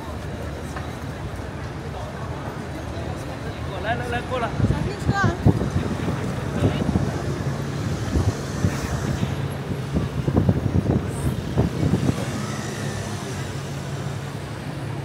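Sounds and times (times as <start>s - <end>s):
people talking: 0.0s - 15.0s
vehicle engine running: 5.4s - 15.0s.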